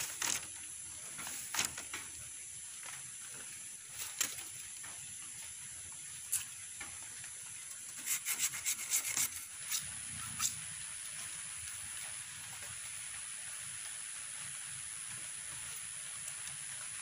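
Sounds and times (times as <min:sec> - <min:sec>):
plastic straw rubbing on bamboo: 0:08.0 - 0:10.6.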